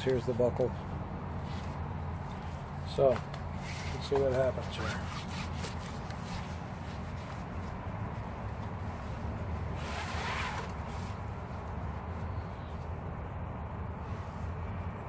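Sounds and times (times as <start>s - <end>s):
belt sliding through belt loops: 1.4s - 7.8s, 8.6s - 11.8s.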